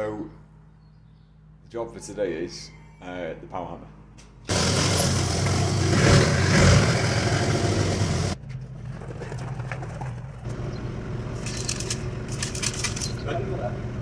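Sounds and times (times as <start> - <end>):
forklift engine running loudly: 4.5 - 8.4
quieter engine idling: 4.5 - 14.0.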